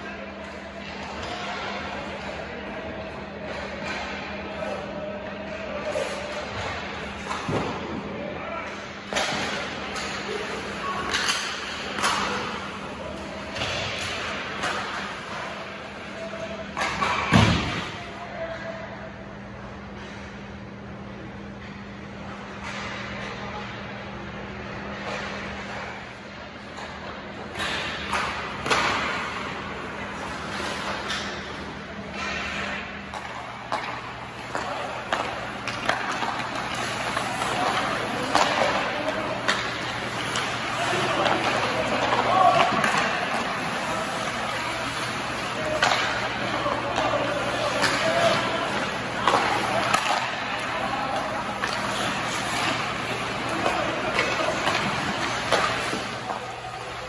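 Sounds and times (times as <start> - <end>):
hockey sticks and pucks knocking: 5.5 - 8.0, 8.6 - 18.6, 24.6 - 57.0
skates scraping ice: 24.6 - 57.0.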